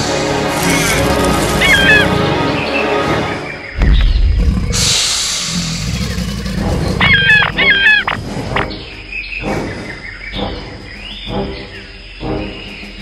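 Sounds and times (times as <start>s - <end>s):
low background music: 0.0s - 13.0s
warbling animal calls: 0.6s - 2.4s, 4.3s - 8.7s.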